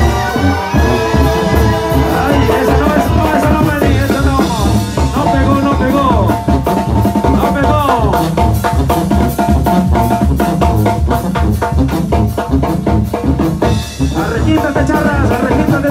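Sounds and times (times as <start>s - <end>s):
held melody notes: 0.0s - 11.8s
steady drum beat: 0.0s - 15.9s.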